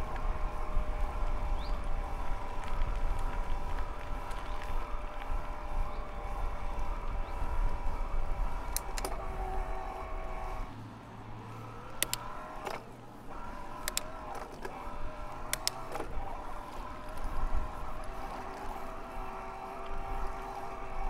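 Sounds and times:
electric bike motor whining: 0.0 - 21.0
sharp clicks: 8.5 - 10.7, 11.8 - 21.0.

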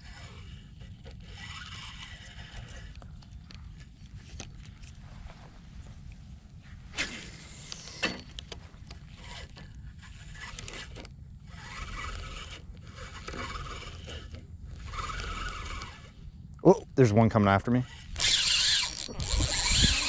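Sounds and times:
clothing rustling and scraping: 3.8 - 9.8
wind rumble on microphone: 17.9 - 20.0.

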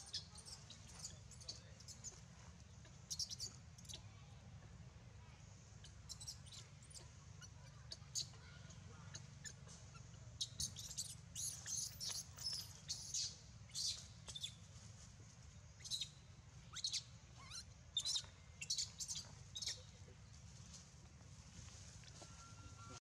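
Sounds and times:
baby monkey squeaking: 0.0 - 2.2, 3.1 - 4.0, 5.8 - 8.4, 9.1 - 14.6, 15.8 - 19.9.

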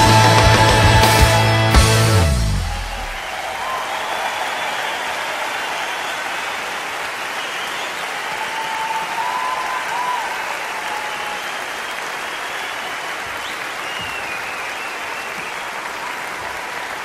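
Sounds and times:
audience applauding: 0.0 - 17.0
thin whistles: 13.4 - 15.6.

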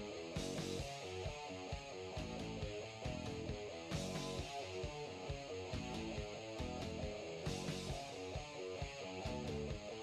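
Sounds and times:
steady drum beat: 0.0 - 9.9
electric guitar riff: 0.0 - 10.0.

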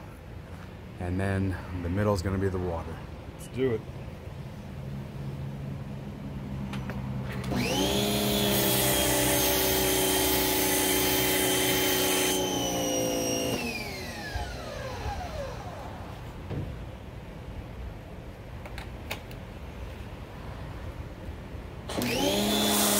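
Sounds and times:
pressure washer motor whine: 7.3 - 16.4, 21.9 - 22.9.

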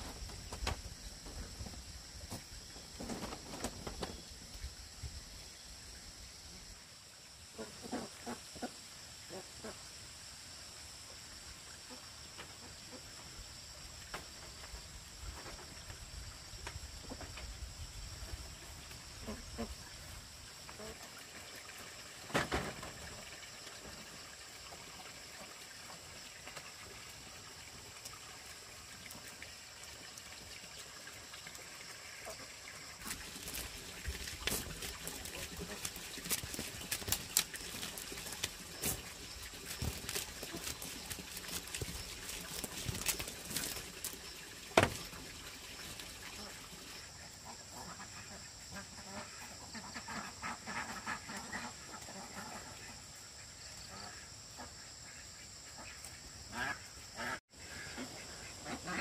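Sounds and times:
ducks quacking: 47.4 - 53.0, 55.8 - 59.0.

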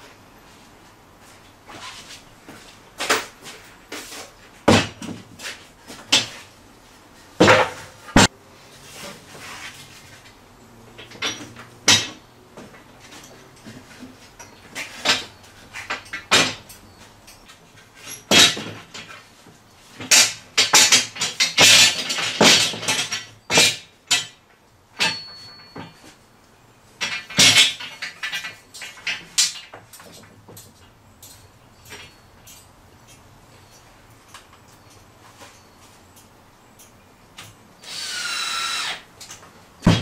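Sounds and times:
metal clamps and boards clattering: 7.4 - 8.3, 10.9 - 19.2, 19.9 - 24.4, 25.0 - 26.2, 27.0 - 33.2, 39.3 - 40.0.

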